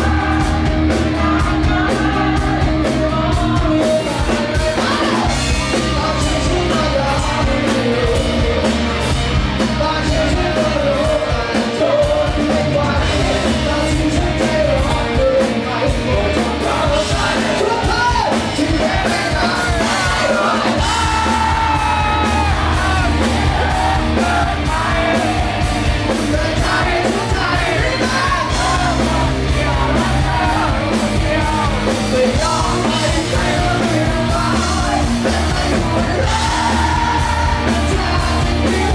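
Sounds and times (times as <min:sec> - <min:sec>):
drums: 0:00.0 - 0:38.9
electric guitars: 0:00.0 - 0:38.9
person singing and shouting: 0:01.2 - 0:08.2, 0:09.8 - 0:25.4.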